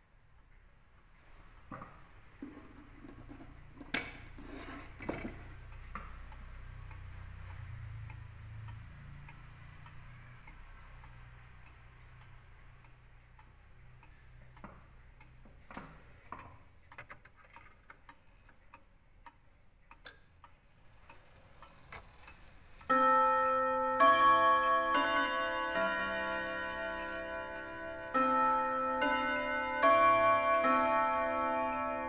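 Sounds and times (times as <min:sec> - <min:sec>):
wall clock ticking: 0:05.3 - 0:16.8, 0:17.5 - 0:32.0
clock chime melody: 0:22.9 - 0:32.0.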